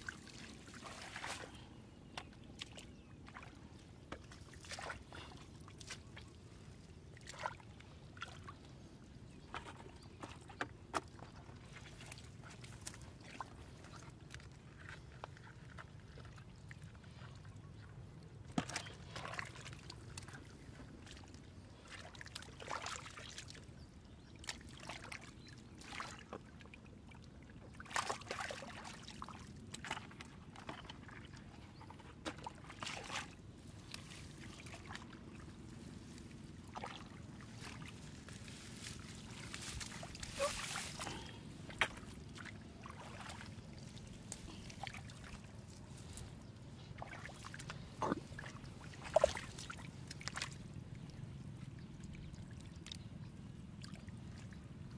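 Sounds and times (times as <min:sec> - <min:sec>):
shallow water splashing: 0:00.0 - 0:08.8, 0:27.5 - 0:52.9.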